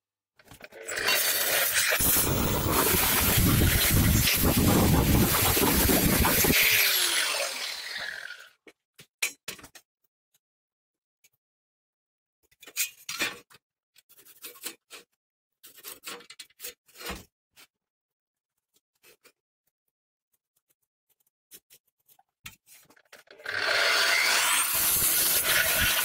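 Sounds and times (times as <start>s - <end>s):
angle grinder winding down: 0.9s - 8.5s, 23.4s - 26.0s.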